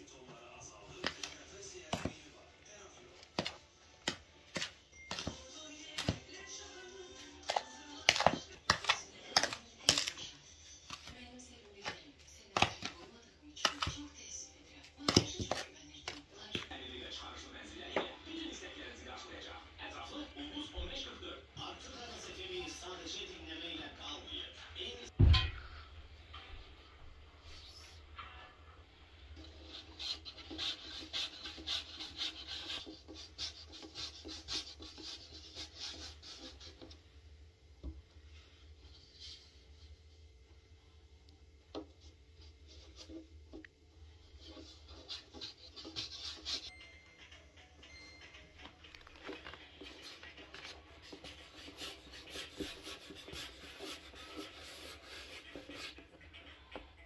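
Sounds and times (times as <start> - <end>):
hands rubbing dough on wooden board: 29.5 - 37.0, 44.2 - 46.7, 49.8 - 56.0.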